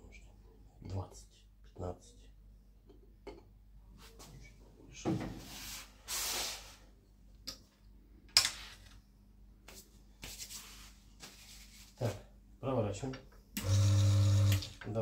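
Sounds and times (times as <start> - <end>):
short hiss: 5.7 - 6.8.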